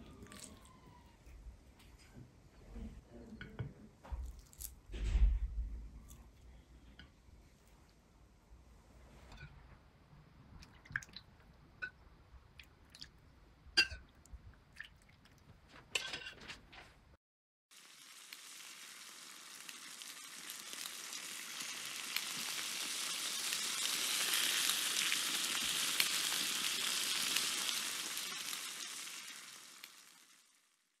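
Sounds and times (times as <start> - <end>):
fire-like crackling hiss: 17.7 - 30.9.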